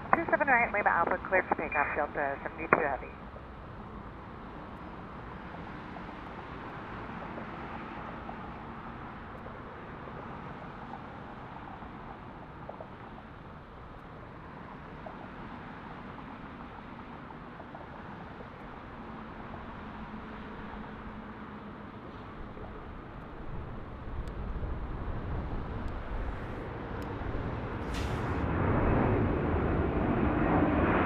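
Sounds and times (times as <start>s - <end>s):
distant jet engine roar: 0.0s - 31.0s.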